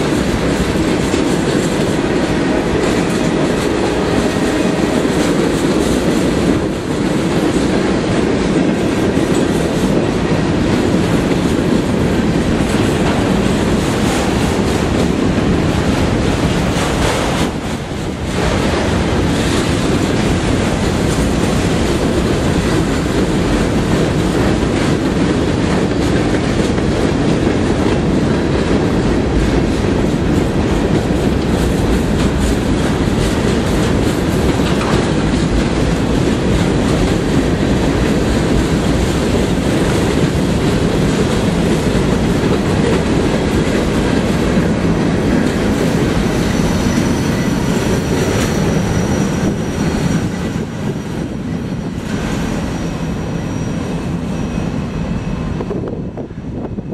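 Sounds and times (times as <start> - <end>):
wheels clacking over rail joints: 0.0 - 53.7
freight train rumbling past: 0.0 - 56.9
high wheel squeal: 46.2 - 50.6, 52.1 - 55.6.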